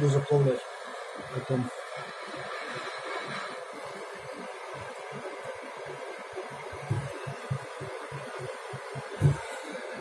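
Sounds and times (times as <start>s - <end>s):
gas torch hissing: 0.0s - 10.0s.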